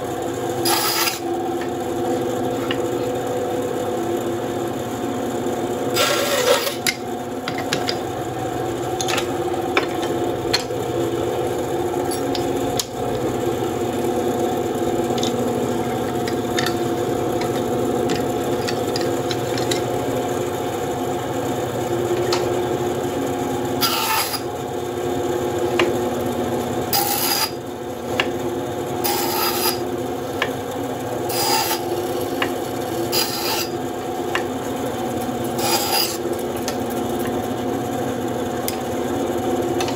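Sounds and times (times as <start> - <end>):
bandsaw humming: 0.0 - 39.9
bandsaw rasping through wood: 0.6 - 1.3, 5.9 - 6.9, 23.8 - 24.5, 26.9 - 27.6, 29.0 - 29.8, 31.3 - 33.8, 35.5 - 36.4.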